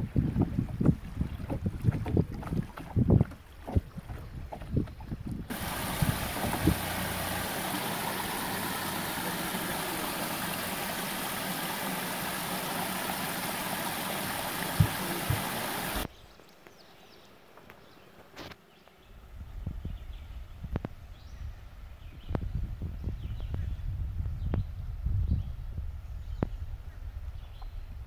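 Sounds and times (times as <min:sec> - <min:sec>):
water rushing over rocks: 0:05.4 - 0:16.1
low thuds: 0:05.5 - 0:11.4, 0:13.7 - 0:16.1.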